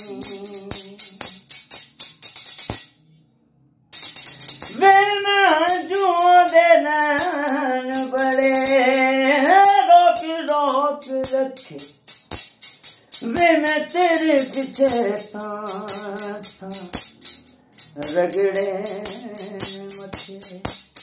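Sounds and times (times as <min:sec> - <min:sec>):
man singing: 0:00.0 - 0:01.4, 0:04.7 - 0:11.9, 0:13.2 - 0:17.0, 0:18.0 - 0:20.8
rhythmic rattling beat: 0:00.0 - 0:03.2, 0:03.9 - 0:21.0.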